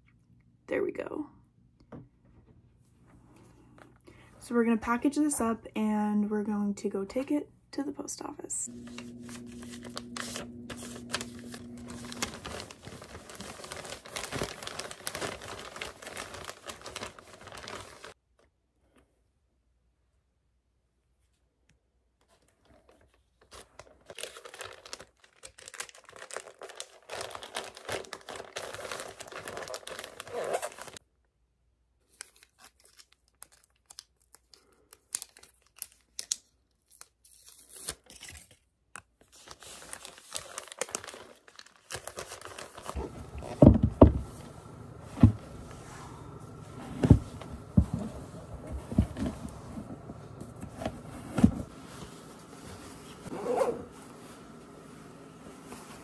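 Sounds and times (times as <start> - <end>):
plastic envelope crinkling: 8.7 - 18.2, 22.6 - 31.0, 32.0 - 53.3.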